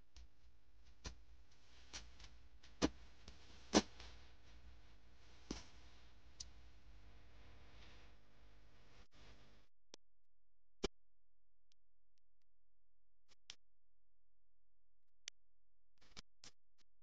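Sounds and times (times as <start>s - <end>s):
faint low hum: 0.0s - 9.7s.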